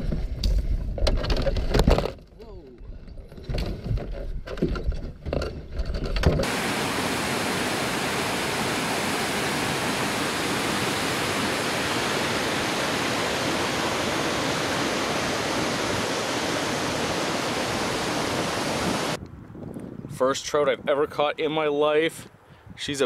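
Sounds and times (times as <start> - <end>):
river rapids and waterfall: 6.4 - 19.2
wind rumble: 6.4 - 20.2.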